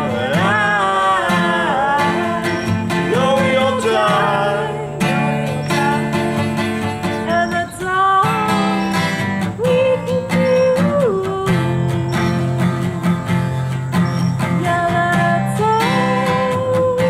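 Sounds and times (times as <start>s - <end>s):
person singing: 0.0s - 13.5s, 14.4s - 17.0s
acoustic guitar strumming: 0.0s - 17.0s.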